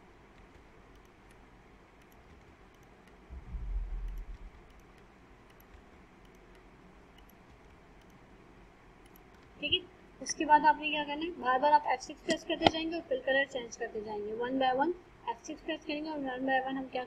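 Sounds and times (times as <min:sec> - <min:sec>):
computer mouse clicks: 0:00.3 - 0:01.4, 0:02.0 - 0:03.3, 0:03.9 - 0:08.2, 0:09.0 - 0:09.6
keyboard key presses: 0:02.0 - 0:03.2, 0:03.9 - 0:08.2
low rumble: 0:03.3 - 0:04.5.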